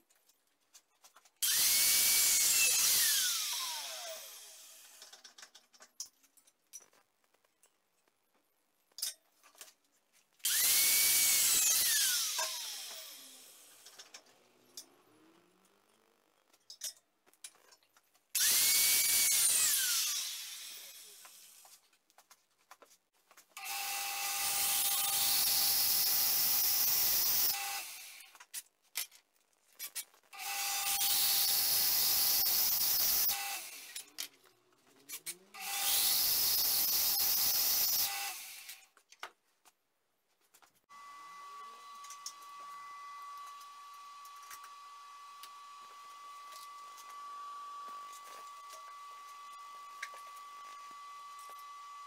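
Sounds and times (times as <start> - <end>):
angle grinder spinning: 1.4 - 5.3, 10.4 - 17.0, 18.4 - 21.8, 23.6 - 28.4, 29.9 - 38.9.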